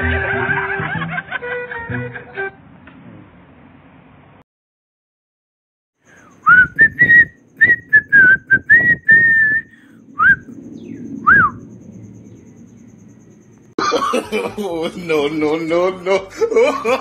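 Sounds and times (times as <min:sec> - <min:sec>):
person whistling a tune: 0:06.4 - 0:10.5, 0:11.2 - 0:11.6.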